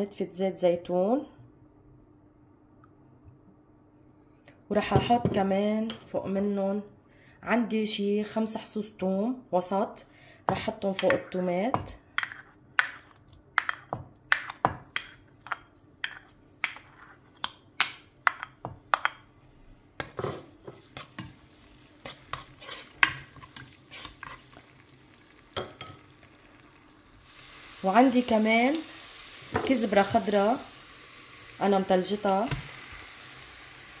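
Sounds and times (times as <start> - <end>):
spoon tapping and scraping a bowl: 10.9 - 19.3, 22.0 - 24.6
oil sizzling: 20.4 - 34.0.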